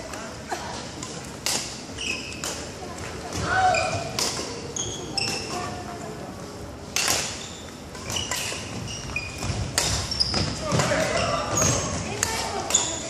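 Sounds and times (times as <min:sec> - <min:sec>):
racket hitting shuttlecock: 0:01.0 - 0:02.7, 0:03.3 - 0:04.6, 0:06.9 - 0:08.8, 0:09.4 - 0:12.9
shoes squeaking on wooden floor: 0:01.9 - 0:02.4, 0:07.3 - 0:13.0.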